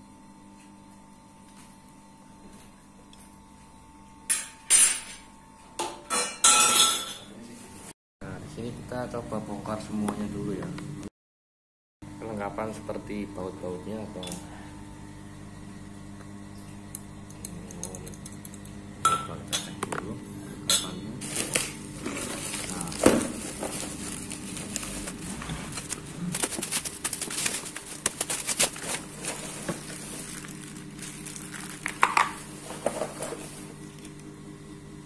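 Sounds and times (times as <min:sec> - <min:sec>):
steady background hum: 0:00.0 - 0:11.1, 0:12.0 - 0:35.0
bubble wrap crinkling: 0:21.2 - 0:34.2.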